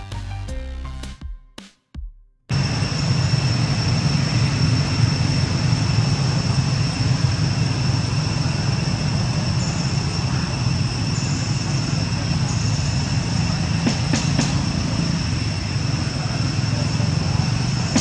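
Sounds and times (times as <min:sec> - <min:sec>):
constant high-pitched whine: 0:02.5 - 0:18.0.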